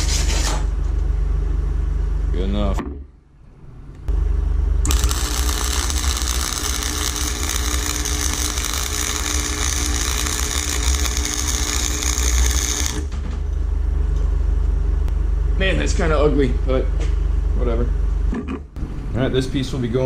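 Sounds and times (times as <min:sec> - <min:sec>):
welding machine hum: 0:04.1 - 0:14.3
welding arc crackling: 0:04.8 - 0:13.2.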